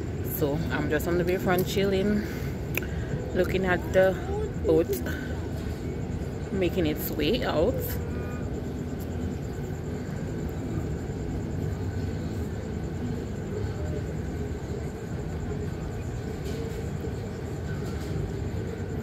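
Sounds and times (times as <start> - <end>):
faint hum: 0.0 - 19.0
ship engines rumbling: 0.0 - 19.0.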